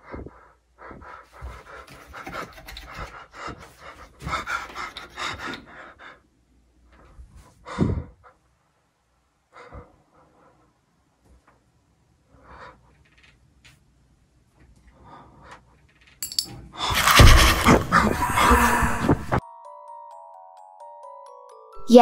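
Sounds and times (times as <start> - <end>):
person breathing heavily: 7.3 - 8.4, 16.7 - 19.4
loud thump: 16.9 - 19.4.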